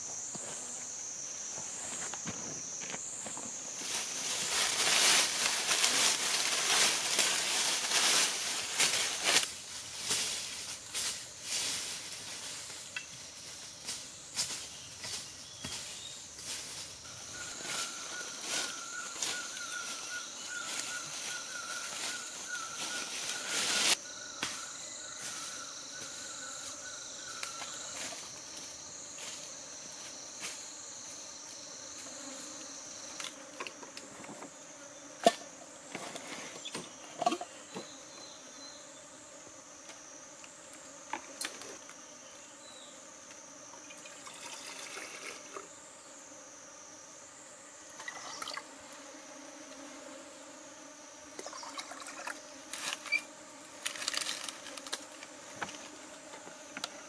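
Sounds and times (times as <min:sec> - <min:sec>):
insects droning: 0:00.0 - 0:57.0
lower insect tone: 0:00.0 - 0:57.0
crunches in dry leaves: 0:03.8 - 0:24.0, 0:53.8 - 0:55.2.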